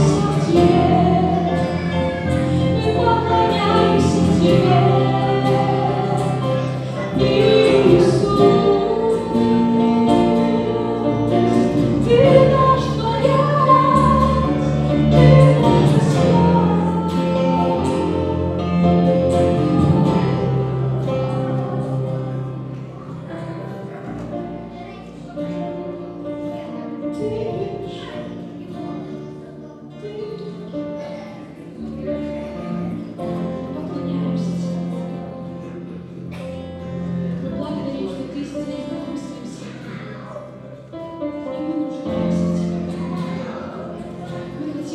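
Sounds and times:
group of people singing: 0:00.0 - 0:23.1
guitars: 0:00.0 - 0:44.9
keyboard: 0:00.0 - 0:44.9.

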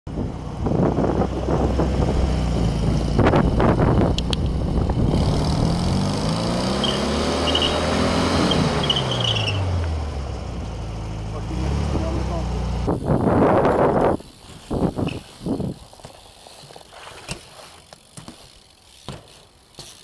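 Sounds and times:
wind rumble on microphone: 0:00.1 - 0:06.1, 0:12.8 - 0:16.1
car engine running: 0:00.1 - 0:14.9.

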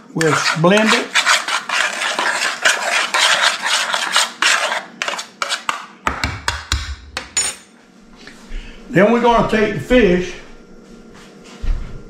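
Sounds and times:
utensil scraping a pan: 0:00.0 - 0:05.9.

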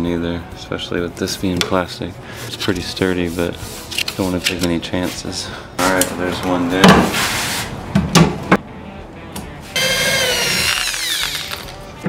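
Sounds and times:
power drill boring into wood: 0:09.8 - 0:11.7.

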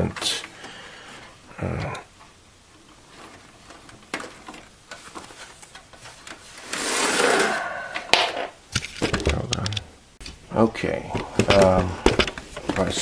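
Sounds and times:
cable rubbing scrape: 0:03.0 - 0:07.7.

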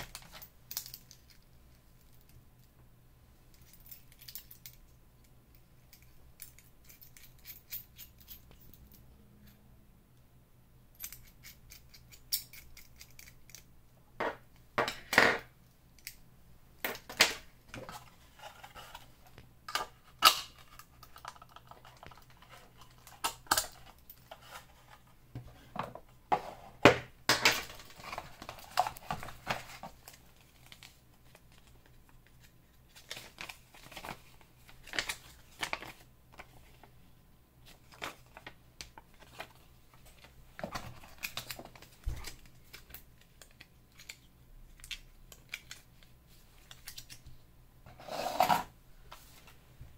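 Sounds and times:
metal keychains clicking and clinking: 0:05.9 - 0:09.0, 0:11.0 - 0:13.7.

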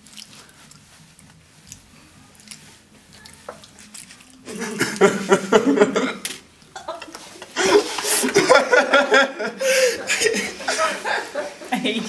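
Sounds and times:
chewing with wet clicks: 0:00.0 - 0:04.5
loud laughter: 0:04.5 - 0:06.2, 0:06.8 - 0:12.0.

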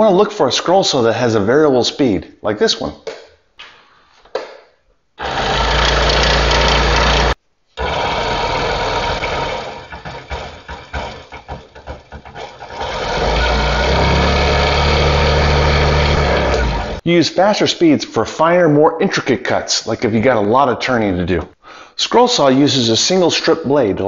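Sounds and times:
scroll saw running: 0:05.2 - 0:11.3, 0:12.4 - 0:17.0.

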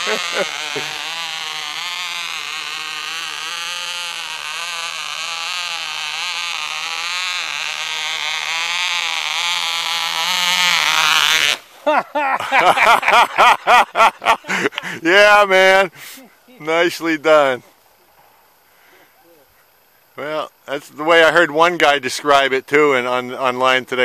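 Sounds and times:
model plane engine buzzing: 0:00.0 - 0:11.7.

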